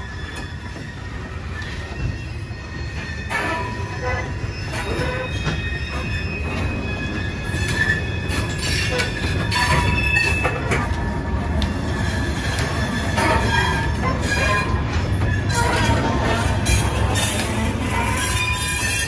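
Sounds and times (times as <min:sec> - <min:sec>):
wheel squeal: 0:00.0 - 0:10.8, 0:11.8 - 0:19.0
clanks from wheels and couplers: 0:07.6 - 0:11.8.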